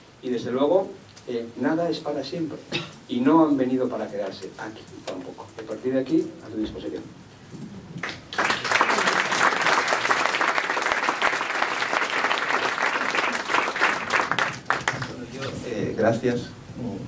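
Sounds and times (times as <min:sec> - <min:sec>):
audience applauding: 0:08.0 - 0:15.3.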